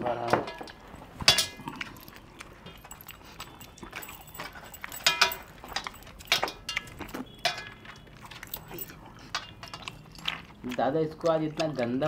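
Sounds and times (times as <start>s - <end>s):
metal rings clinking on steel plate: 1.3s - 2.1s, 2.7s - 9.8s.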